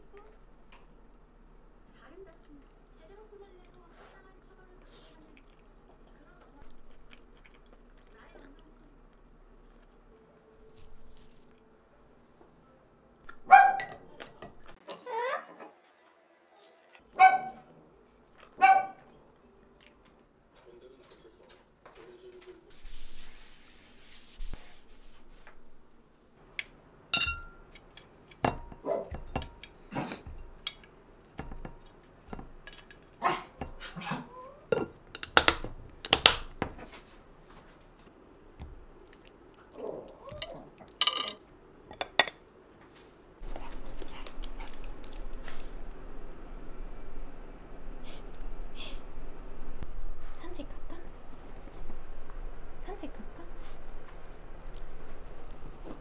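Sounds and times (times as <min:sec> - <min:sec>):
dishes and cutlery clinking: 0:13.3 - 0:15.1, 0:26.5 - 0:37.0, 0:40.3 - 0:42.5.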